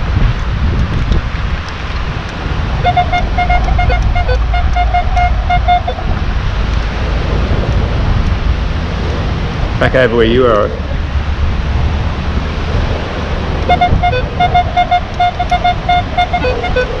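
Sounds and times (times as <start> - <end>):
wind buffeting microphone: 0.0 - 17.0
metal detector beeping: 2.8 - 6.0, 13.7 - 17.0.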